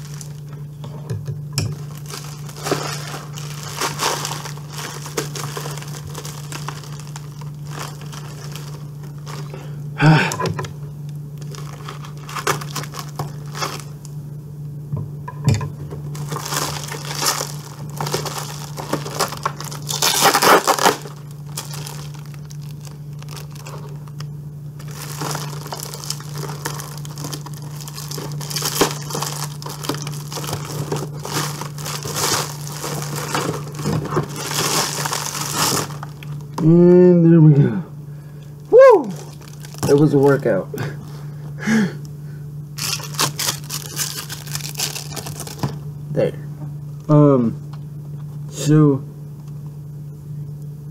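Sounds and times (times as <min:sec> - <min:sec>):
packing tape crinkling and tearing: 0:00.0 - 0:00.8, 0:01.7 - 0:09.8, 0:11.4 - 0:14.1, 0:16.1 - 0:36.7, 0:39.0 - 0:40.5, 0:42.8 - 0:45.8
steady low hum: 0:00.0 - 0:50.9.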